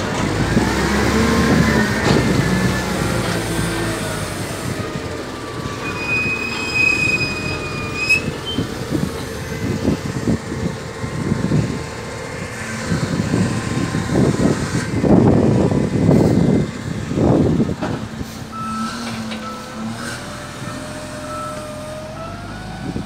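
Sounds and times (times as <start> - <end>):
diesel engine running: 0.0 - 23.0
high metallic squeal: 5.7 - 9.7, 18.6 - 23.0.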